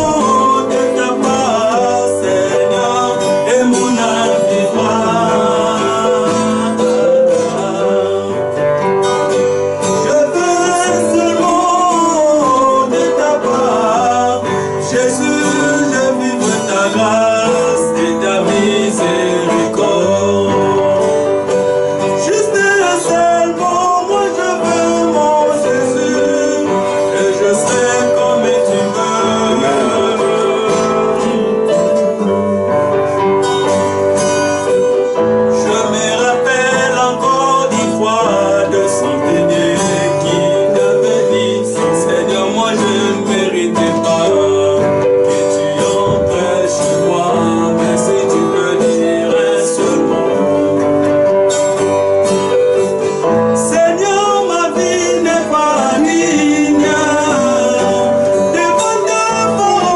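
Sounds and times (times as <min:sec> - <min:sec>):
acoustic guitar: 0:00.0 - 0:59.9
keyboard accompaniment: 0:00.0 - 0:59.9
man singing: 0:00.0 - 0:59.9.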